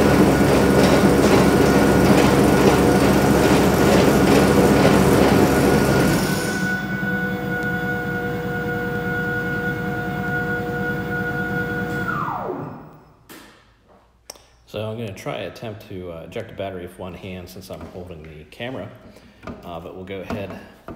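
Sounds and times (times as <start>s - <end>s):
snowblower rattly running: 0.0s - 12.0s
electric motor whine: 0.0s - 13.0s.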